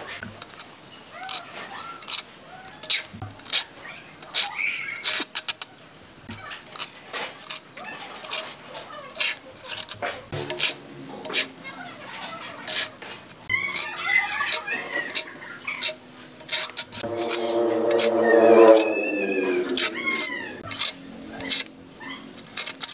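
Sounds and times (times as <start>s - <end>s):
long pitched animal call: 17.0s - 20.6s.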